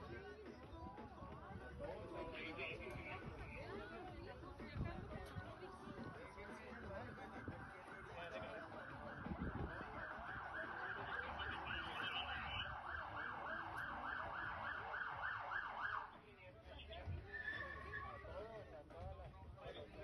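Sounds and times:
emergency siren yelping: 0:08.3 - 0:16.1.

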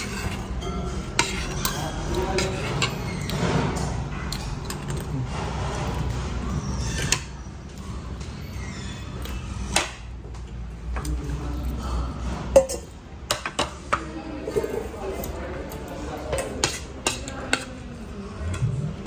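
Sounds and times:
cutlery clinking on plates: 0:00.0 - 0:05.1.

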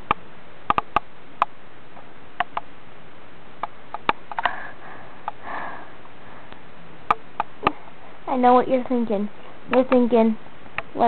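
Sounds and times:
light sharp clicks and taps: 0:00.0 - 0:02.7.

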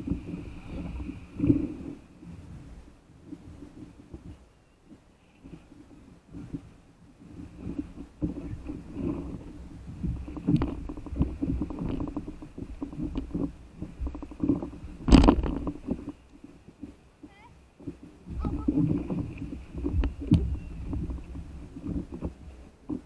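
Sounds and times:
water slapping paddle board: 0:00.0 - 0:23.0
knocks and rustles on board: 0:10.1 - 0:16.2.

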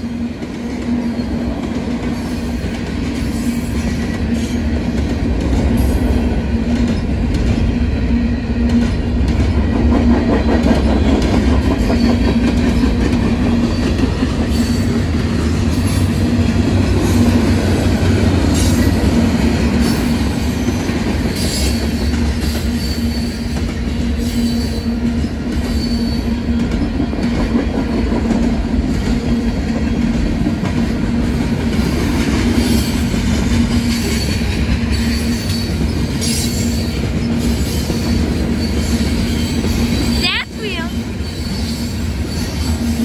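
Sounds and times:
freight train rumbling past: 0:00.0 - 0:43.0.

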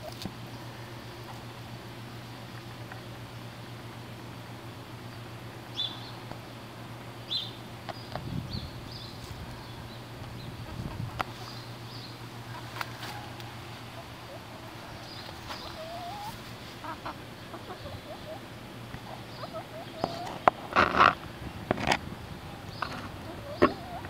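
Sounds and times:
chickens clucking softly: 0:09.2 - 0:21.2, 0:22.7 - 0:24.0
chicken rising calls: 0:10.6 - 0:21.2, 0:22.5 - 0:24.0.

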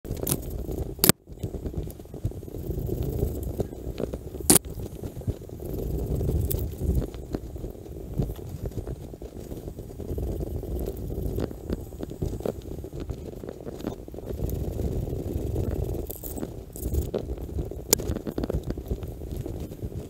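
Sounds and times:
wind rumble on microphone: 0:00.0 - 0:20.0
scrapes and clicks: 0:00.1 - 0:20.0.

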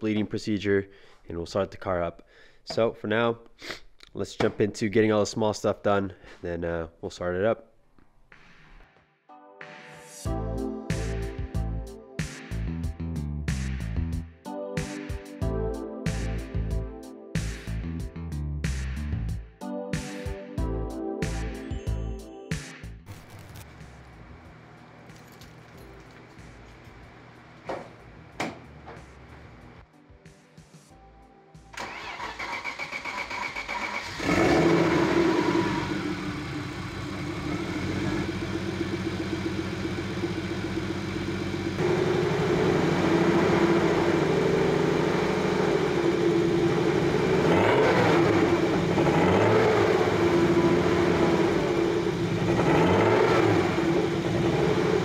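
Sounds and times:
engine starter cranking: 0:31.8 - 0:34.9
car engine revving and running: 0:33.1 - 0:55.0.

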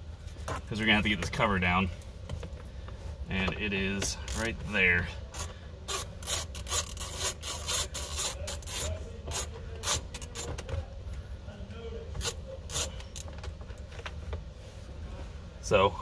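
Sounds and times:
hand tool clicking and scraping: 0:04.0 - 0:04.6, 0:05.3 - 0:10.6, 0:12.2 - 0:13.3.

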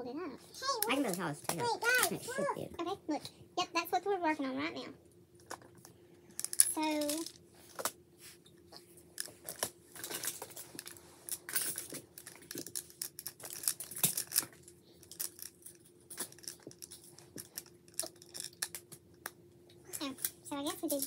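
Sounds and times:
plastic tiles clicking and clattering: 0:06.4 - 0:07.9, 0:09.2 - 0:19.3.

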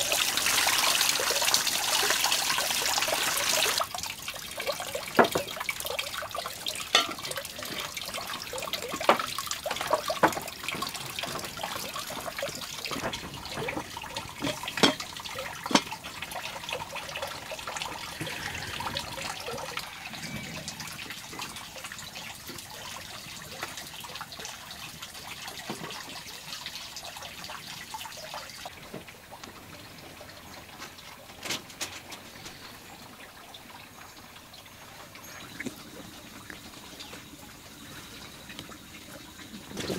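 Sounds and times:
water splashing into metal basin: 0:00.0 - 0:28.6.

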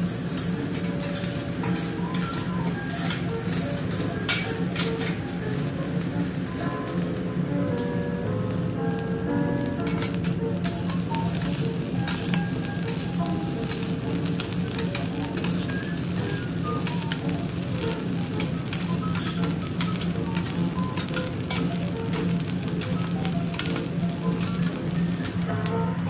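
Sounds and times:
rice sizzling on a griddle: 0:00.0 - 0:26.0
spatula clicking on griddle: 0:00.4 - 0:05.3, 0:09.8 - 0:25.7
metal spatulas scraping: 0:00.7 - 0:05.2, 0:09.9 - 0:17.3, 0:18.0 - 0:25.4.

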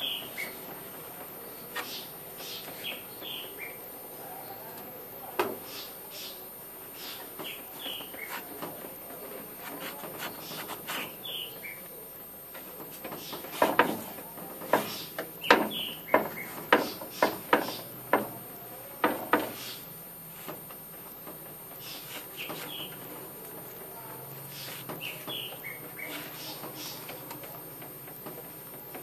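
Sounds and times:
cloth wiping hot plate: 0:09.6 - 0:11.2.

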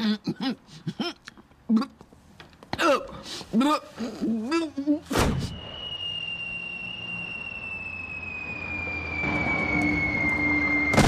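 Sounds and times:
falling whistle: 0:05.2 - 0:11.0
low hum: 0:05.5 - 0:11.0.

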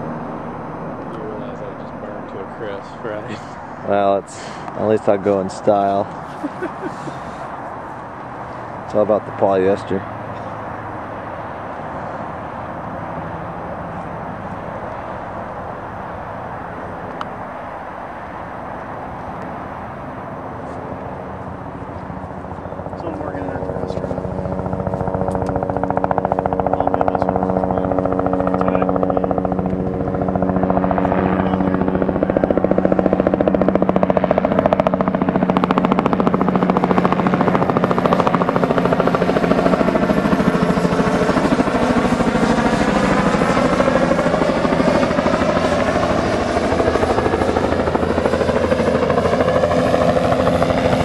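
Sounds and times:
turbine whine: 0:00.0 - 0:51.0
helicopter rotor thudding: 0:21.1 - 0:51.0.

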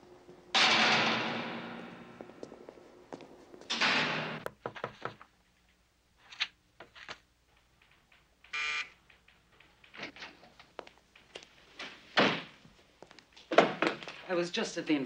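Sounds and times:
steel gate clanging shut: 0:00.5 - 0:02.2, 0:03.7 - 0:04.5.

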